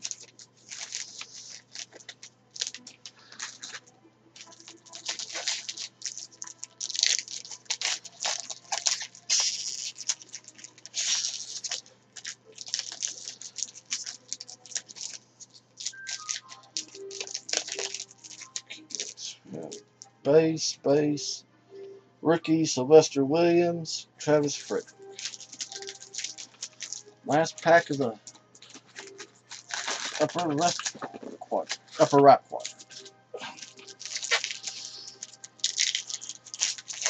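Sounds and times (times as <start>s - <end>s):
cards being handled: 0.0s - 19.8s, 24.4s - 37.0s
wrapper crinkling and tearing: 0.0s - 19.8s, 24.5s - 37.0s.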